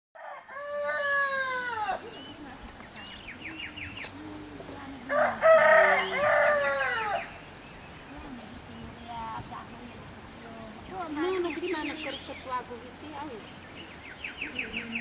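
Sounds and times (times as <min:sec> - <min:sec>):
rooster crowing: 0:00.2 - 0:02.0, 0:05.1 - 0:07.4.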